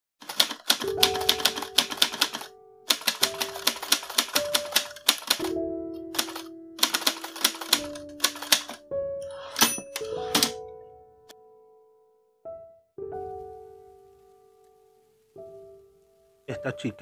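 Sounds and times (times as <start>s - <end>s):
typewriter keys clacking: 0.2s - 8.8s, 9.4s - 10.6s
music with held notes: 0.8s - 17.0s.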